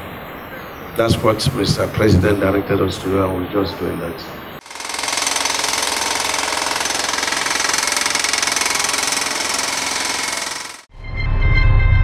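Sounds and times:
jackhammer chipping concrete: 0:04.6 - 0:10.9.

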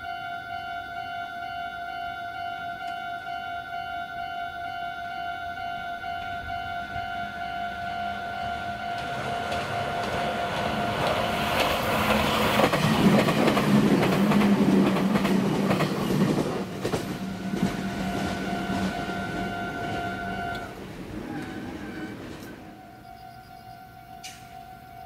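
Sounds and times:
electric train rumble: 0:00.0 - 0:25.0
wheels clicking over rail joints: 0:06.7 - 0:22.8.

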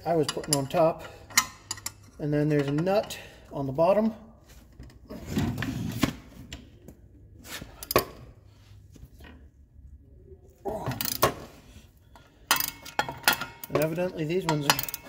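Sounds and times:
wrenches scraping and rattling: 0:00.0 - 0:03.2, 0:10.8 - 0:15.0.

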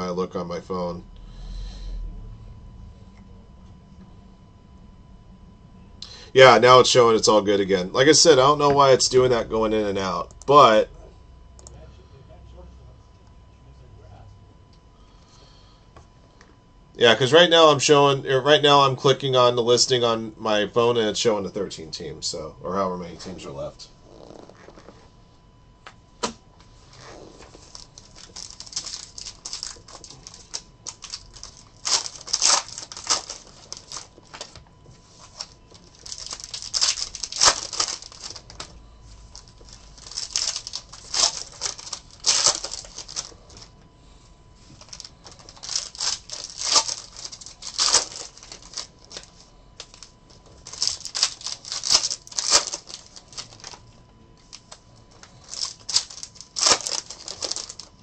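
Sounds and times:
foil wrappers crinkling and tearing: 0:26.9 - 0:43.7, 0:44.7 - 0:53.8, 0:54.5 - 0:58.0.

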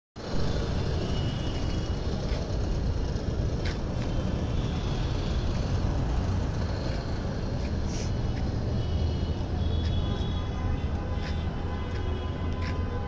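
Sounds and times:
diesel engine rumbling: 0:00.2 - 0:13.0
sharp ticks or hisses: 0:06.8 - 0:08.5.

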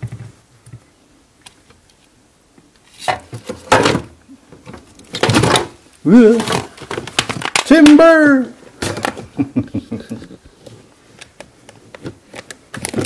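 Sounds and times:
plastic handling noise: 0:02.8 - 0:08.2, 0:08.8 - 0:09.4, 0:10.5 - 0:13.0
plastic scraping and rattling: 0:03.0 - 0:07.7, 0:10.6 - 0:13.0.

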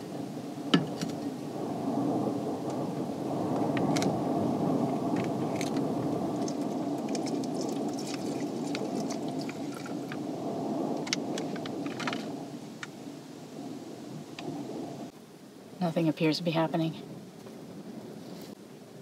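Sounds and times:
steady low rumble: 0:00.0 - 0:19.0
water pouring into metal cup: 0:06.4 - 0:10.0.

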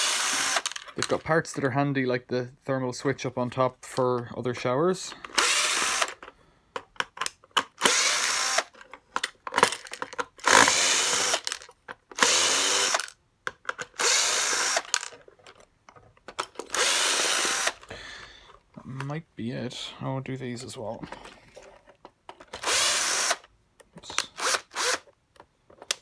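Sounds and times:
cordless drill running: 0:00.0 - 0:00.8, 0:05.3 - 0:06.2, 0:07.8 - 0:08.7, 0:10.4 - 0:11.6, 0:12.2 - 0:13.1, 0:14.0 - 0:15.0, 0:16.7 - 0:17.8, 0:22.6 - 0:23.4, 0:24.3 - 0:25.1.

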